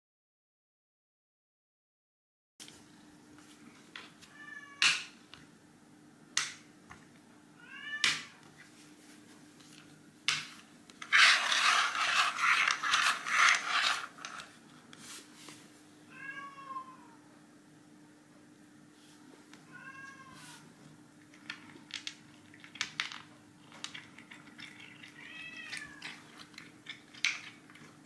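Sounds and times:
cat meowing: 4.3s - 4.8s, 7.6s - 8.4s, 16.1s - 17.3s, 19.7s - 20.6s, 24.9s - 26.3s
scraping and rustling: 10.6s - 15.7s.

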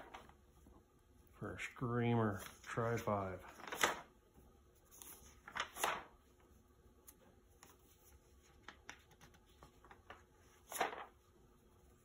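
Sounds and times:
magazine pages turning: 0.0s - 0.4s, 2.2s - 4.1s, 4.8s - 12.0s
paper rustling: 0.0s - 0.5s, 2.2s - 4.1s, 4.8s - 12.0s.

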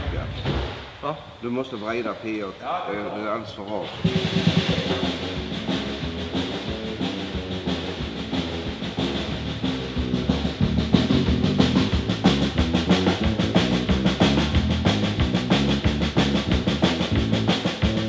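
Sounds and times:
dance band playing: 3.7s - 18.0s
drum kit beat: 3.8s - 18.0s.

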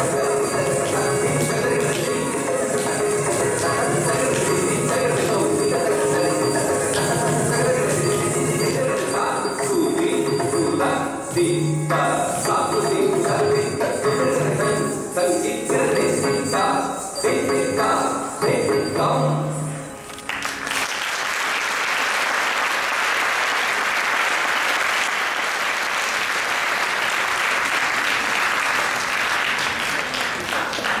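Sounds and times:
dance music: 0.0s - 20.0s
audience applauding: 20.2s - 31.0s.

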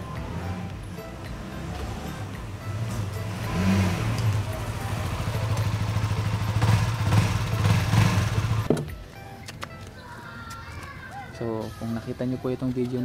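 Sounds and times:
motorcycle engine running: 0.2s - 8.9s.

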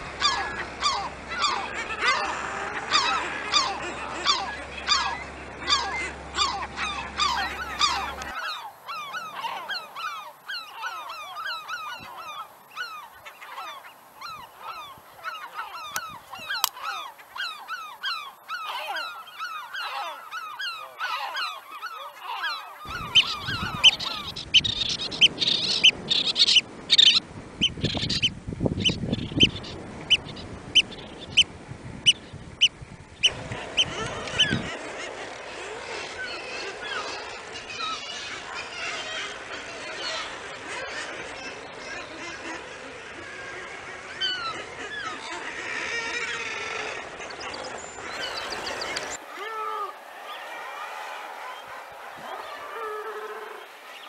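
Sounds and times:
seabirds calling: 0.0s - 54.0s
oystercatcher piping calls: 2.9s - 31.5s.

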